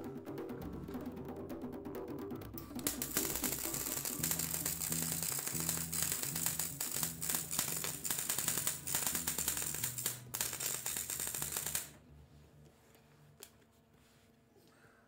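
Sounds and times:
welding arc crackling: 0:02.8 - 0:12.0.

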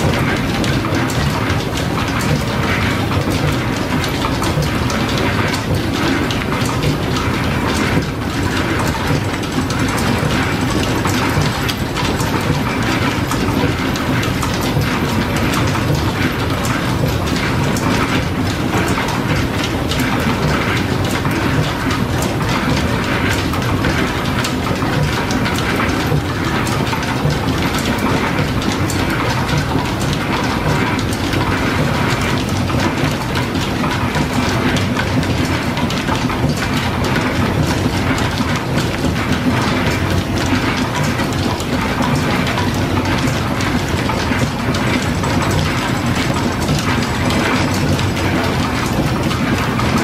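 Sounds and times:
machine clicking and knocking: 0:00.0 - 0:50.0.

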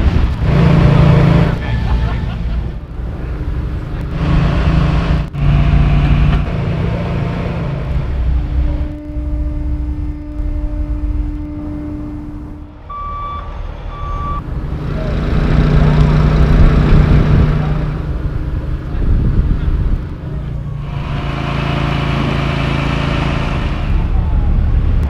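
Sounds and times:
heavy equipment engines running: 0:00.0 - 0:25.0
backup alarm beeping: 0:09.0 - 0:14.4.

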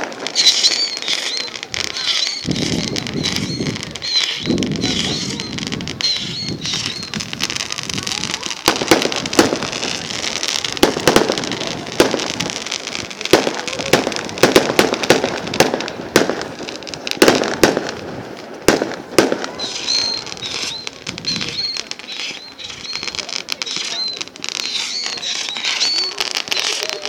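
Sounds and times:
firework shells bursting: 0:00.0 - 0:27.0
fireworks crackling: 0:00.0 - 0:27.0.

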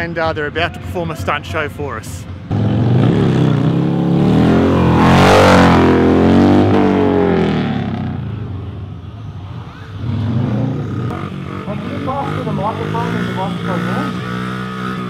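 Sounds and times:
motorcycle engine revving past: 0:02.5 - 0:08.4, 0:09.4 - 0:15.0.

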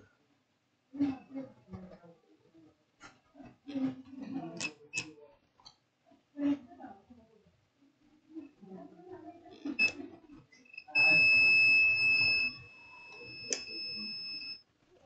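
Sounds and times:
multimeter continuity beep: 0:10.7 - 0:14.6.

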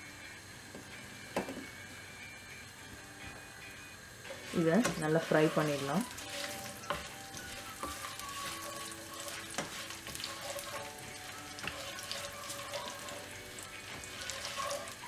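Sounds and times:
spices sizzling in hot oil: 0:03.0 - 0:15.0.

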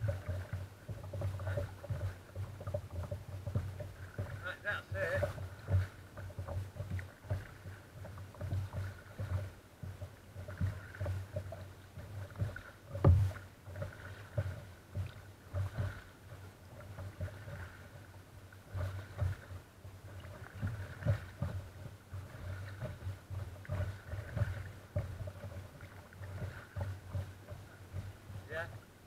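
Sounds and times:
water splashing against kayak hull: 0:00.0 - 0:29.0
thump on kayak: 0:12.3 - 0:14.6.

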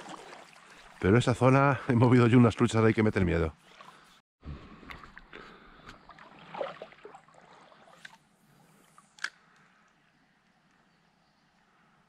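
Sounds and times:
river water splashing: 0:00.0 - 0:01.7, 0:03.6 - 0:10.7.

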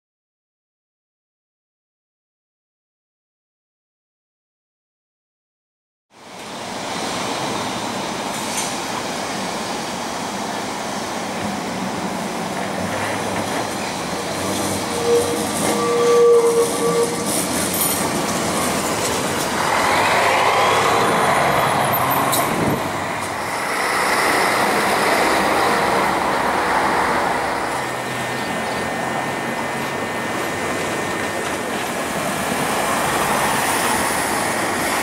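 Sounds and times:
tram wheels clattering on rails: 0:06.3 - 0:35.0
high wheel squeal: 0:13.8 - 0:31.4.

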